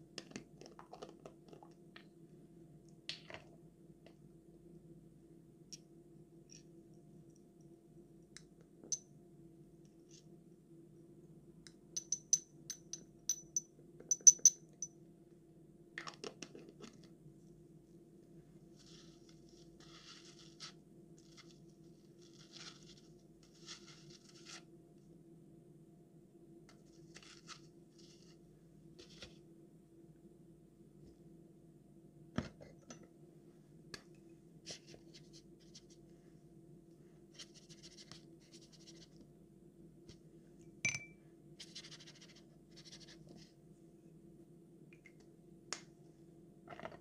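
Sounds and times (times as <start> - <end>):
faint low hum: 0.0 - 47.0
dropper clinking on glass jar: 12.0 - 14.6, 40.9 - 41.2
scrape: 18.7 - 24.7, 26.8 - 28.4, 29.0 - 29.4, 34.6 - 36.4, 37.3 - 39.2, 41.6 - 43.6.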